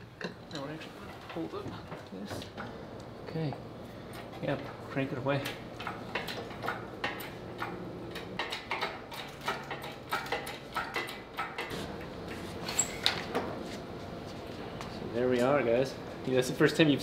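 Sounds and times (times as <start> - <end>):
clicks and metal knocks: 5.4 - 11.7.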